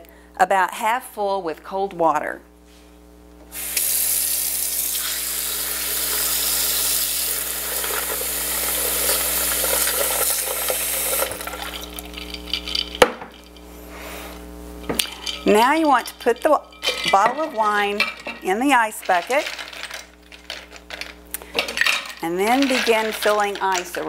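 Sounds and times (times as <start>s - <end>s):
faucet water rushing: 3.6s - 12.1s.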